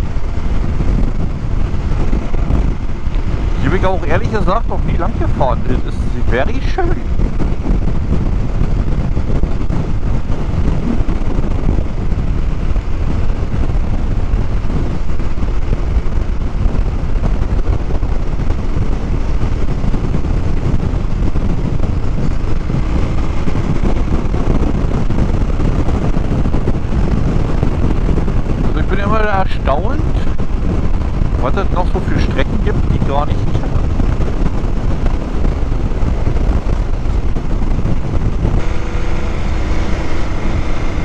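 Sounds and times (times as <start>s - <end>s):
motorcycle engine running: 0.0s - 41.0s
wind rushing over microphone: 0.0s - 41.0s.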